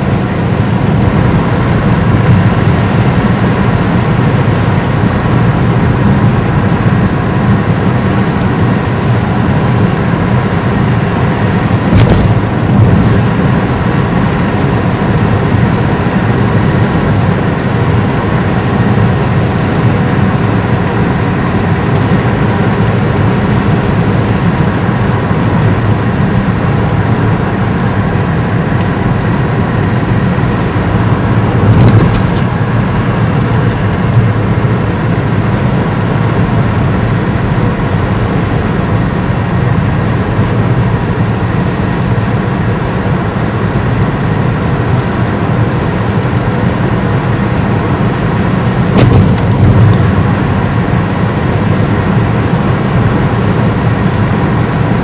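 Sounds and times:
car engine and road noise: 0.0 - 55.0
brief thumps: 11.9 - 13.0, 49.0 - 49.9.

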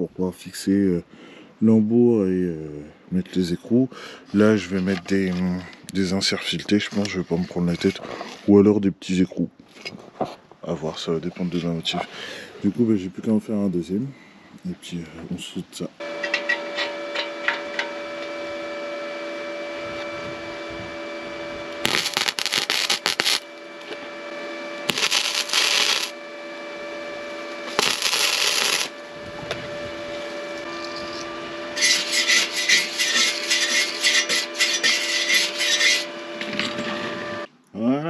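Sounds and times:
steady two-note hum: 15.9 - 33.4
arc welding crackling sizzle: 21.7 - 24.2, 24.8 - 26.2, 27.4 - 36.1.

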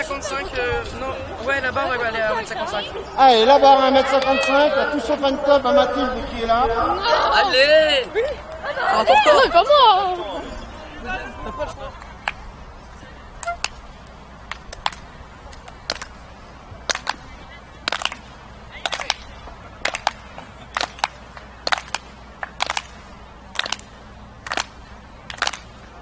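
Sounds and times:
spectators clapping in unison: 14.5 - 16.2, 16.8 - 25.9.

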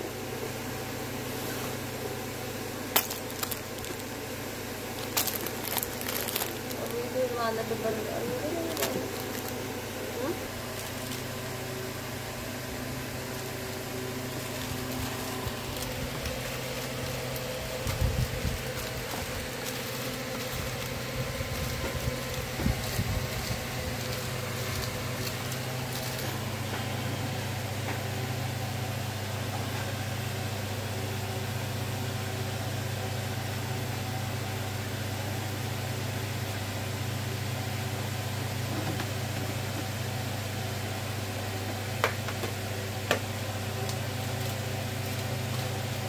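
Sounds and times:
low mechanical hum: 0.0 - 46.0
bumps and crackles: 4.9 - 7.2, 14.4 - 26.4.

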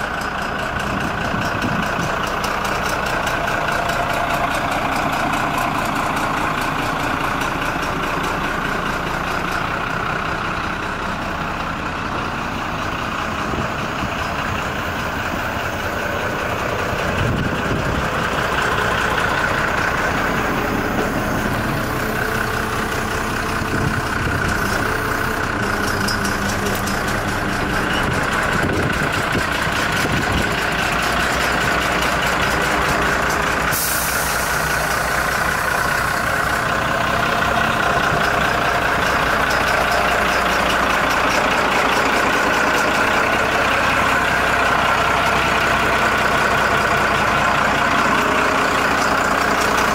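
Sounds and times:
truck diesel engine idling: 0.0 - 49.9.

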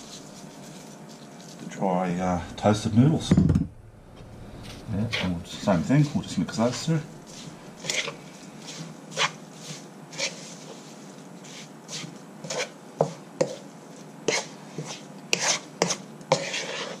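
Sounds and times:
wooden spatula scraping a wok: 4.5 - 17.0.

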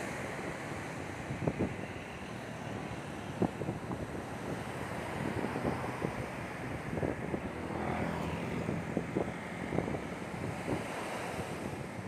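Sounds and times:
small waves breaking on beach: 0.0 - 12.0
wind buffeting microphone: 0.0 - 12.0.

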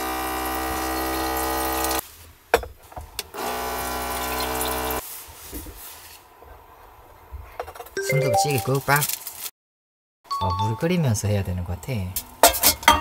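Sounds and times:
small electric water pump running: 0.0 - 2.0, 3.4 - 5.0.

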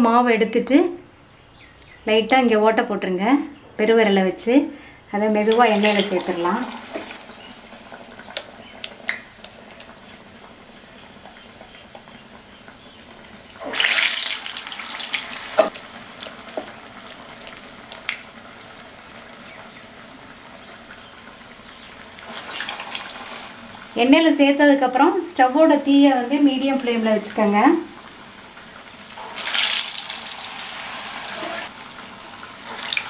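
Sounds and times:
batter sizzling in hot oil: 5.2 - 19.6, 21.2 - 24.1, 25.9 - 33.0.

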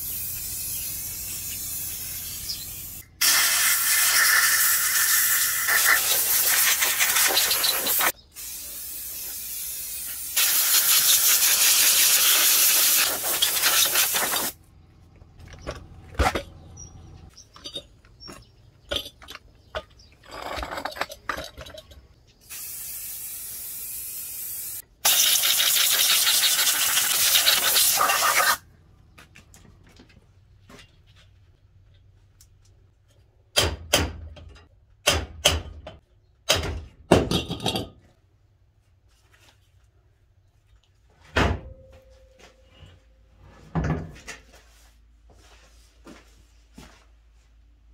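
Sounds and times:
aerosol spray can hissing: 0.0 - 14.6, 22.5 - 28.6.

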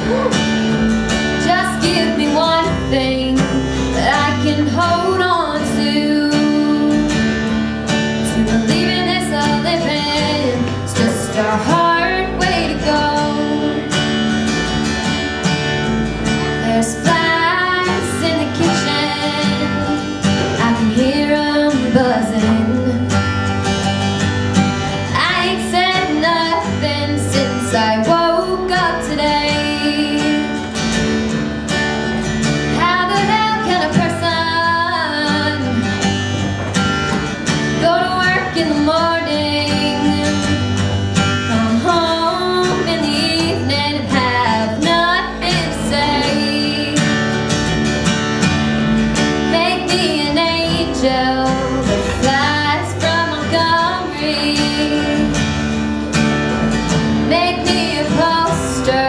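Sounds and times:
acoustic guitars: 0.0 - 59.0
girl singing: 1.2 - 7.3, 8.2 - 14.0, 16.4 - 23.2, 25.0 - 30.7, 32.7 - 36.0, 37.8 - 47.2, 49.4 - 55.5, 57.2 - 59.0.

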